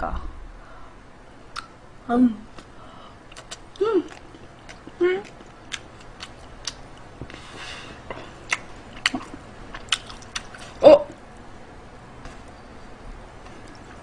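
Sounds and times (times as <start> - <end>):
chewing and lip smacks: 3.3 - 7.4, 8.0 - 11.5, 13.4 - 14.0.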